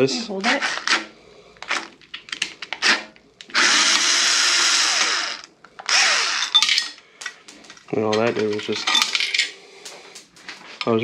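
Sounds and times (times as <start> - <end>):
cordless screwdriver running: 2.8 - 6.6.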